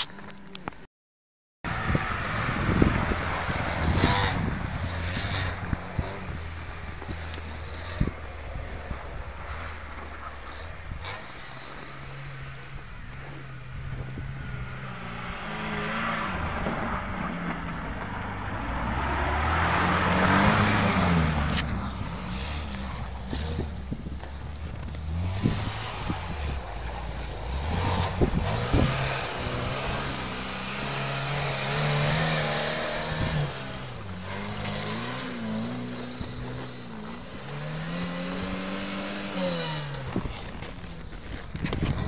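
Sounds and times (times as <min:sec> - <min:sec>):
car engine revving under load: 0:01.7 - 0:42.0.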